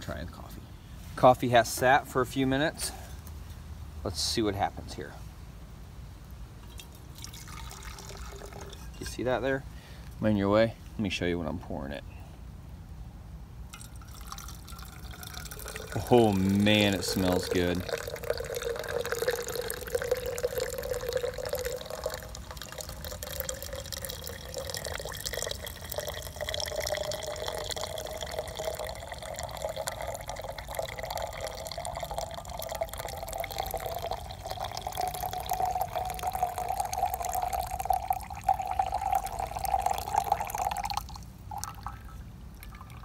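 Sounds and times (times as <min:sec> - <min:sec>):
coffee pouring into a thermos: 0:06.7 - 0:09.2, 0:13.7 - 0:43.0.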